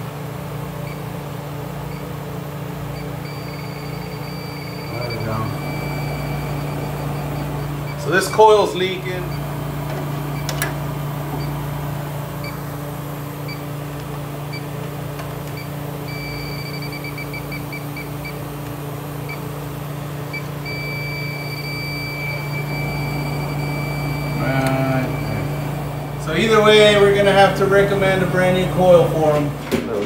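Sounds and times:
leak detector continuous tone: 0:02.8 - 0:29.0
leak detector ticking and beeping: 0:02.9 - 0:08.1, 0:15.6 - 0:18.4, 0:20.3 - 0:26.1
low hum: 0:21.6 - 0:29.0.

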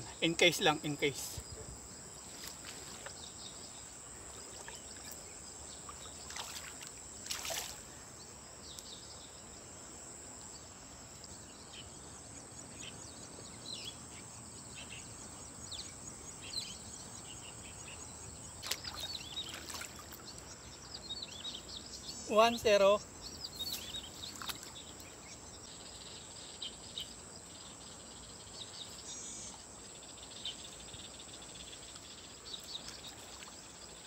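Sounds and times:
high insect drone: 0:00.0 - 0:34.0
water splashing and trickling: 0:02.2 - 0:03.2, 0:04.2 - 0:08.0, 0:18.5 - 0:20.6, 0:23.6 - 0:25.0, 0:32.7 - 0:34.0.

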